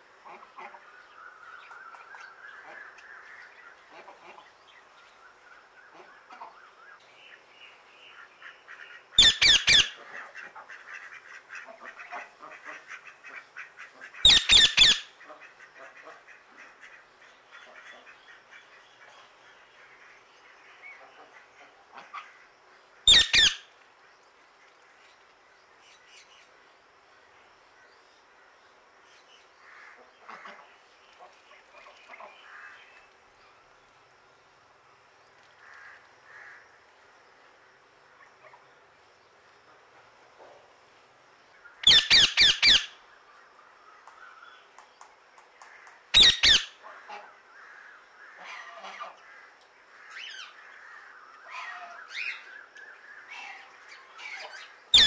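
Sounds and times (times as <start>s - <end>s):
parakeet squawking: 9.2s - 10.0s, 14.2s - 15.1s, 23.1s - 23.6s, 41.8s - 43.0s, 46.2s - 46.7s.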